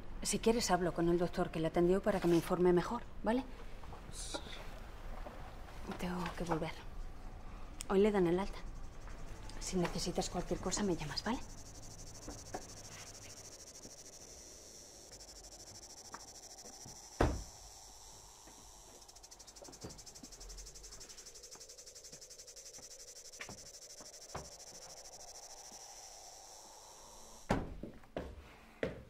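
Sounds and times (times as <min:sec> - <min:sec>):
insects chirring: 0:04.8 - 0:27.5.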